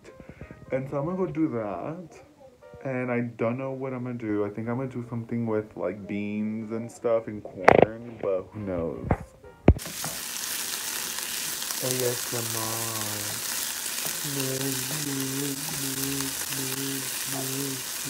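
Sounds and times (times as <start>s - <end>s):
beans sizzling in a frying pan: 9.8s - 18.0s
wooden spoon stirring: 9.8s - 18.0s.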